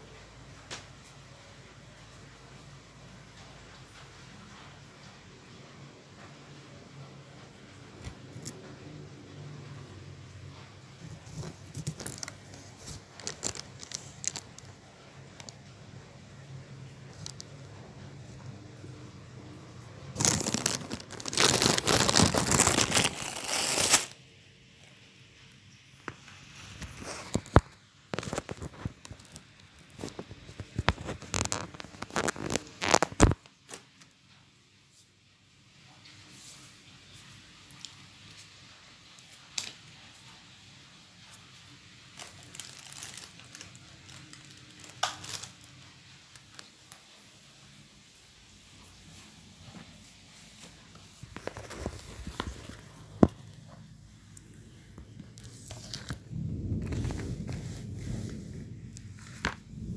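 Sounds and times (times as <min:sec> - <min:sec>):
rustling and crackles: 0:00.0 - 0:24.2, 0:25.4 - 0:35.2, 0:35.8 - 0:59.9
low rubbing rumble: 0:54.6 - 0:59.9.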